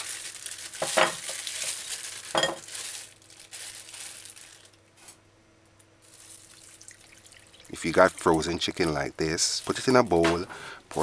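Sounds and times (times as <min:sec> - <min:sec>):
plastic bag crinkling: 0:00.0 - 0:05.2, 0:06.0 - 0:11.0.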